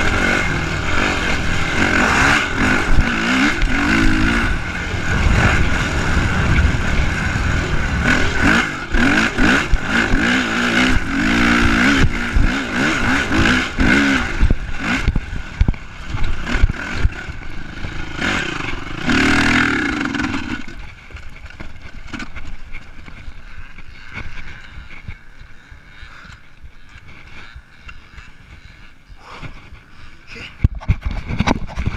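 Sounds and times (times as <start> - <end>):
dirt bike engine revving: 0.0 - 20.9
suspension clattering over bumps: 0.0 - 31.9.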